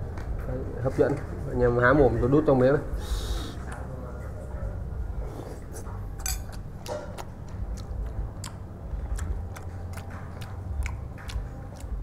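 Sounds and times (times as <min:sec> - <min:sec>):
person chewing: 0:05.5 - 0:12.0.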